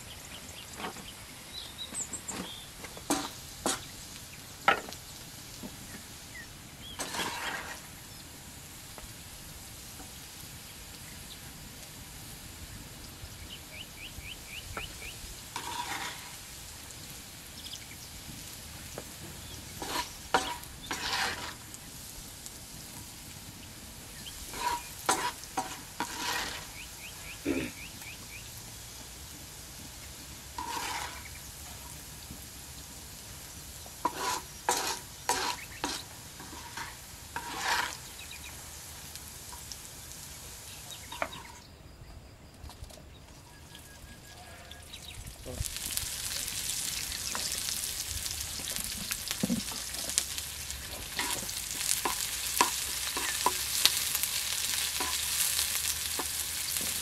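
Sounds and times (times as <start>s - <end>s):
potatoes sizzling in oil: 0.0s - 41.8s, 42.7s - 57.0s
spatula scraping metal pan: 3.1s - 3.9s, 6.9s - 7.9s, 15.5s - 16.4s, 19.8s - 21.6s, 24.4s - 26.9s, 30.6s - 31.4s, 34.0s - 38.4s, 44.2s - 45.0s, 51.0s - 56.9s.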